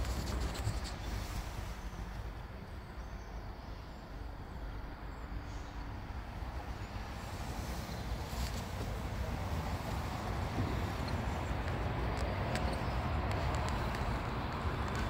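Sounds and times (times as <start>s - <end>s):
wind buffeting microphone: 6.2s - 15.0s.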